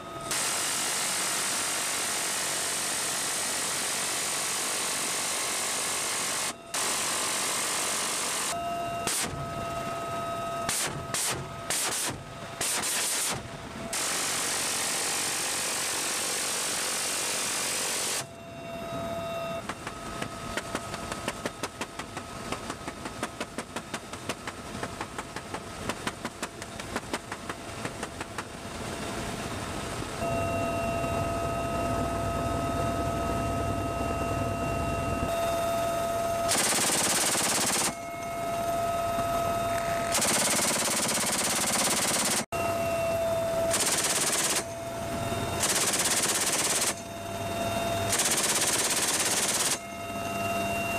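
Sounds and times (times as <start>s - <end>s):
helicopter drone and whine: 0.0s - 50.9s
heavy machine gun firing: 10.7s - 13.4s, 36.5s - 38.0s, 40.1s - 42.5s, 43.7s - 44.7s, 45.6s - 47.0s, 48.1s - 49.8s.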